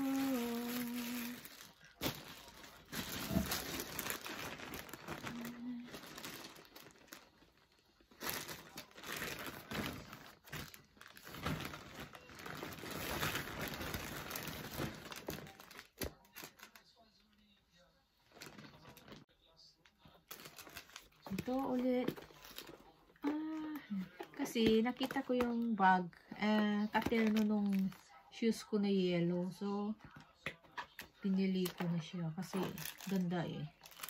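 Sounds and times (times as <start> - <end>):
woman humming: 0.0 - 1.4
plastic packaging crinkling: 0.0 - 17.1, 18.3 - 19.3, 20.0 - 25.8, 26.6 - 28.2, 30.2 - 34.0.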